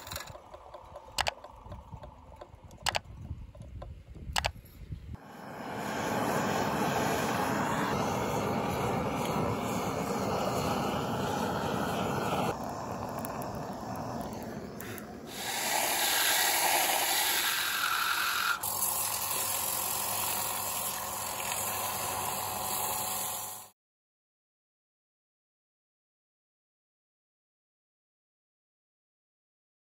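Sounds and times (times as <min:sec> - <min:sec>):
wood lathe spinning: 0:05.5 - 0:23.7
turning tool cutting wood: 0:05.8 - 0:23.7.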